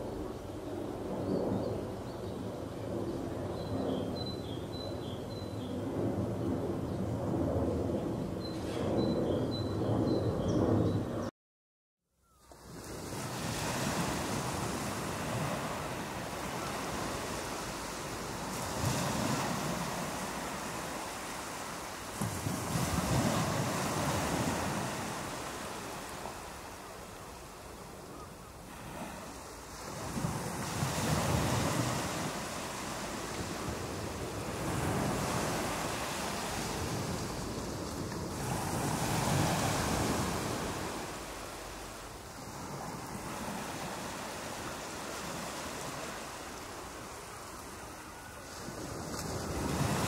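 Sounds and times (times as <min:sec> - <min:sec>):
ocean surf breaking: 0:12.6 - 0:28.0, 0:28.6 - 0:50.0.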